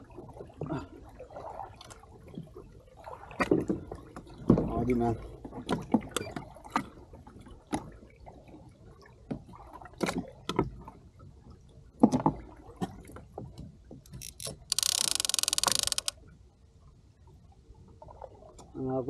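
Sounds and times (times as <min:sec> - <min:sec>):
knocks and clunks of gear: 0:14.0 - 0:16.1.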